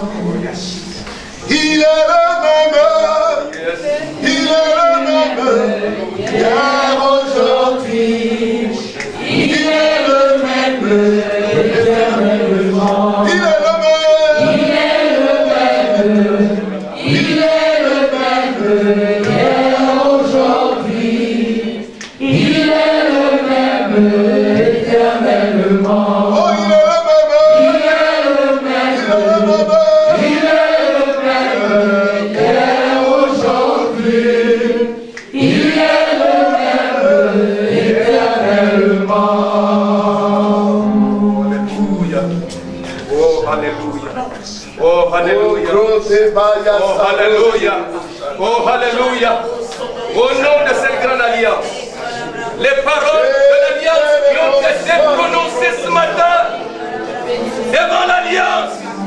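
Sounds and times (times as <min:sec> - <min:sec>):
voices singing a cappella chorus: 0:00.0 - 0:59.0.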